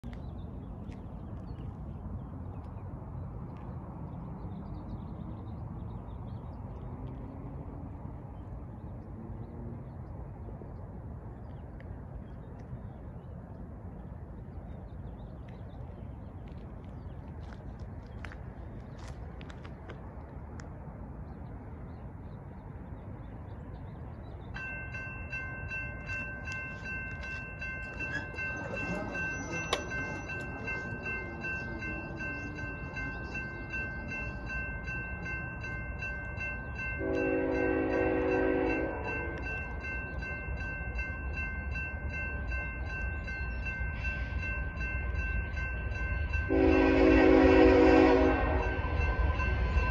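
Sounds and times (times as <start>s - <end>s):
railroad crossing bell ringing: 24.5s - 49.9s
steady low rumble: 48.2s - 49.9s.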